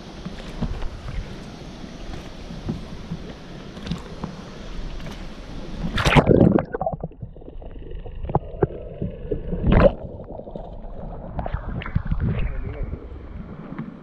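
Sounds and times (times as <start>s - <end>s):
faint underwater tones: 0.0s - 14.0s
underwater clicks: 2.1s - 12.4s
loud splash into water: 5.9s - 6.9s.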